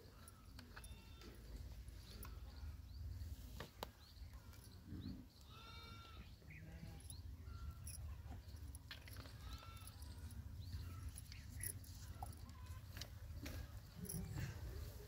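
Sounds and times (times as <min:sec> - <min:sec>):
farm animal bleating: 0:00.7 - 0:01.5, 0:05.4 - 0:07.1, 0:09.2 - 0:11.0.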